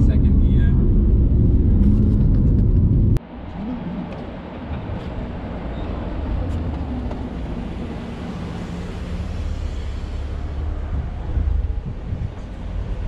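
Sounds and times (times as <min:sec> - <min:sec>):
car engine running steadily: 0:00.0 - 0:03.2
wind noise: 0:00.0 - 0:07.9, 0:09.4 - 0:13.0.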